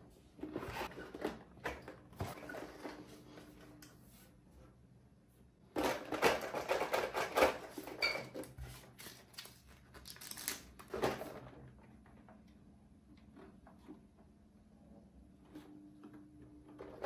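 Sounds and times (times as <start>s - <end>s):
plastic bag crinkling: 9.0s - 10.9s.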